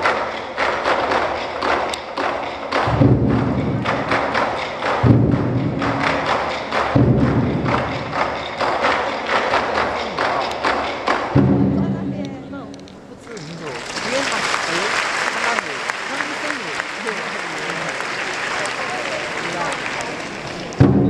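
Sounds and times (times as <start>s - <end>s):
barrel drums struck with sticks: 0.0s - 13.0s, 20.7s - 21.0s
deep ringing drum strokes: 2.9s - 8.6s, 11.3s - 12.3s.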